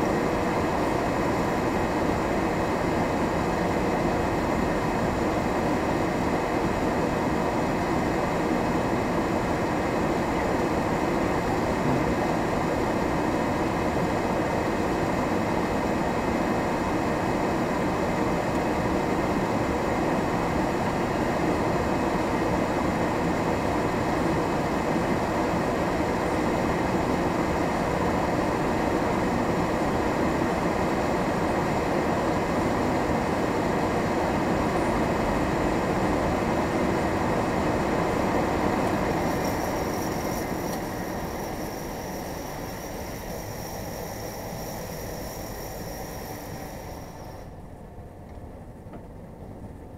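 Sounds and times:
vehicle rumble in cab: 10.6 - 13.0, 34.6 - 49.9.

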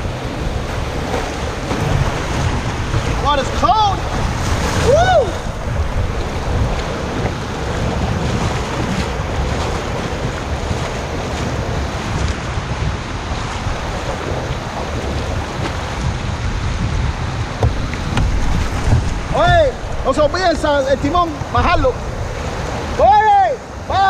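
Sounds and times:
wind buffeting microphone: 0.0 - 23.9
surf breaking: 0.0 - 24.0.

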